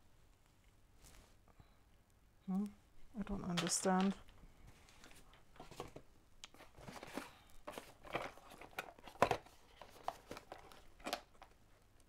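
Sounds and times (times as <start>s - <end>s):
cardboard scraping and rustling: 4.9s - 11.5s.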